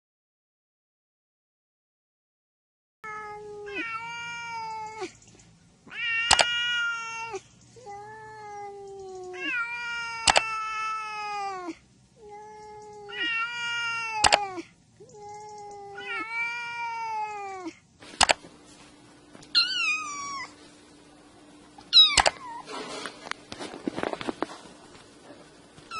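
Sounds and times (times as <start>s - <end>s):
cat meowing: 3.0s - 5.2s, 5.9s - 17.8s, 19.5s - 20.5s, 21.8s - 22.7s
sharp click: 6.3s - 6.5s, 10.2s - 10.5s, 14.2s - 14.4s, 18.2s - 18.4s, 22.1s - 22.4s.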